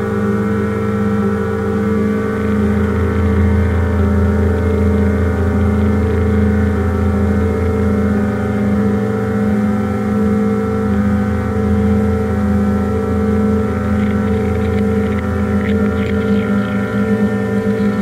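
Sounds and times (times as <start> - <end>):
drone music: 0.5 - 8.9, 11.0 - 18.0.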